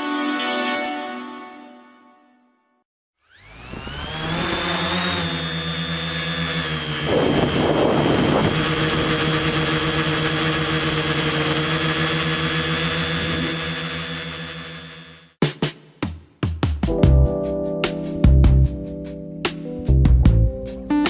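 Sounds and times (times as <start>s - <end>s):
drone motors whirring: 3.2s - 15.4s.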